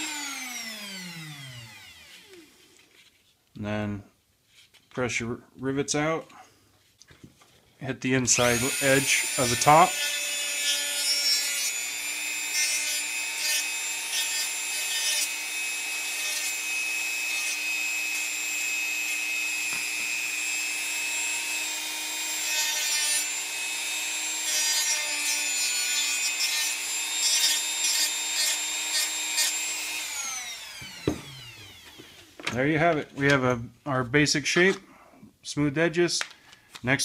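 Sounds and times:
rotary tool sanding: 0:08.4 - 0:32.1.

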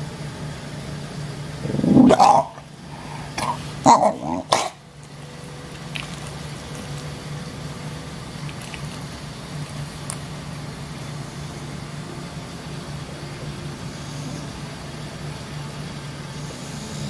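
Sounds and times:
steady low hum: 0:00.0 - 0:17.0
dog grumbling barks: 0:01.6 - 0:02.6, 0:03.3 - 0:04.8.

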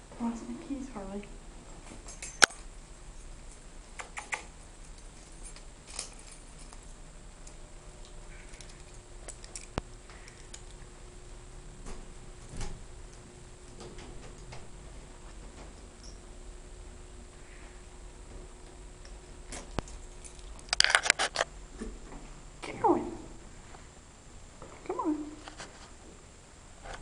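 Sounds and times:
puppy paws clicking on tiles: 0:03.5 - 0:10.9
sharp click: 0:04.0 - 0:04.5.

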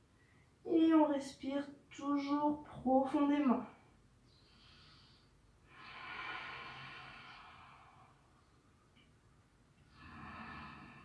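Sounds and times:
slow deep breathing: 0:04.2 - 0:09.1, 0:09.8 - 0:11.0.

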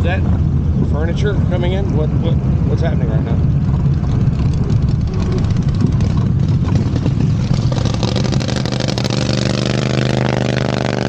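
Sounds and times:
golf cart rumbling over grass: 0:01.9 - 0:10.9
rattling: 0:03.2 - 0:09.6
small engine humming: 0:03.8 - 0:09.2.

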